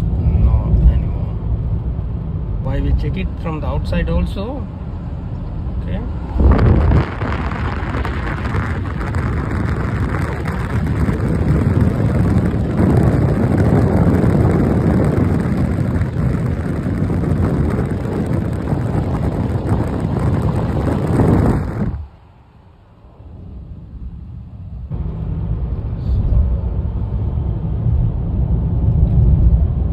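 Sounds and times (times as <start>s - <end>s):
road and engine noise: 0.0s - 29.9s
wind buffeting microphone: 6.2s - 22.4s.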